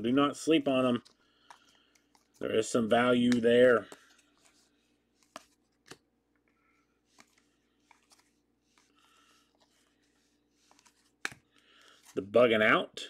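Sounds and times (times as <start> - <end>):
soft rustle of cards: 0.0 - 12.7.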